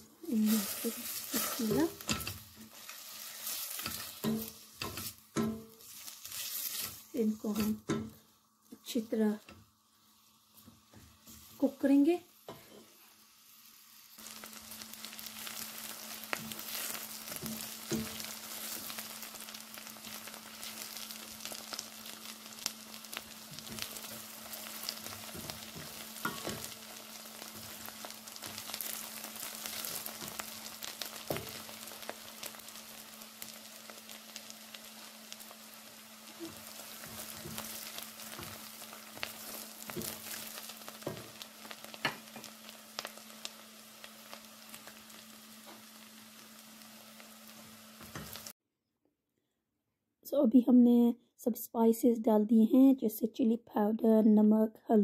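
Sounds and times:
onions sizzling in a pan: 0.0 - 48.6
spoon scraping a pan: 0.5 - 8.2, 12.5 - 13.0, 15.3 - 21.1, 21.7 - 32.2, 36.3 - 43.1.

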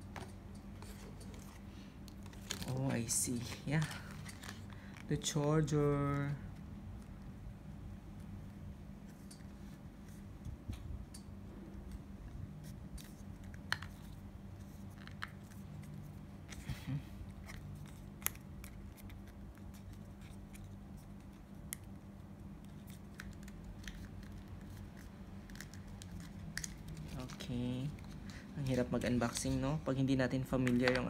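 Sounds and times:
low hum: 0.0 - 30.9
packaging rustling and clicking: 2.1 - 5.1
packaging crinkle: 2.1 - 5.3.

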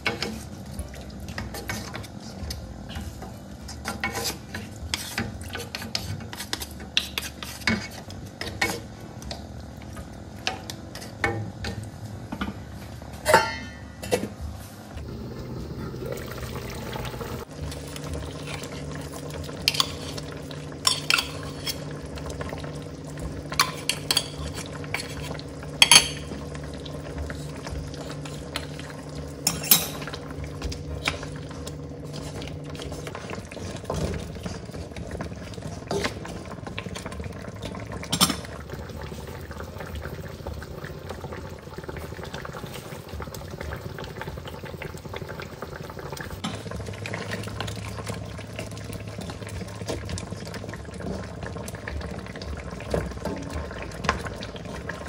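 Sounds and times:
sauce bubbling: 15.0 - 55.0.

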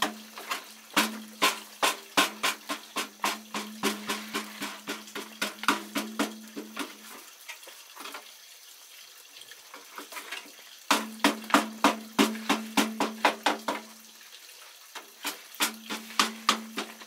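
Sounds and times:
utensil scraping a basin: 0.0 - 7.2, 10.0 - 13.9, 15.2 - 17.0.

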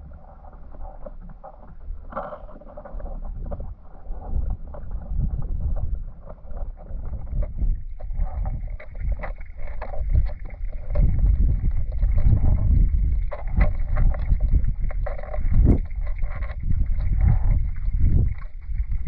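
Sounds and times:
small underwater clicks: 0.0 - 19.0
underwater river rushing: 0.0 - 19.0.

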